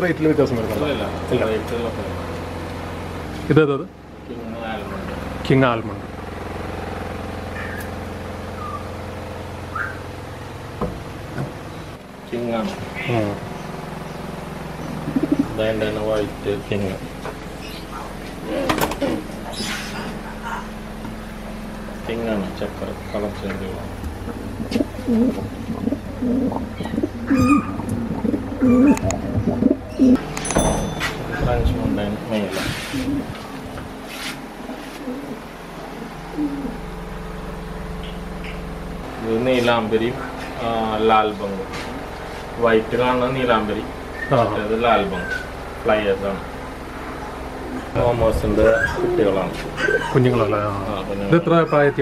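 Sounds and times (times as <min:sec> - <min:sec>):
motor humming: 0:00.0 - 0:52.0
pigeons cooing: 0:07.4 - 0:09.0, 0:09.7 - 0:10.2, 0:13.0 - 0:21.0, 0:22.8 - 0:30.2, 0:32.4 - 0:37.3, 0:44.0 - 0:45.6, 0:46.4 - 0:52.0
faint bird chirps: 0:07.6 - 0:07.9, 0:08.6 - 0:08.9, 0:09.7 - 0:10.0.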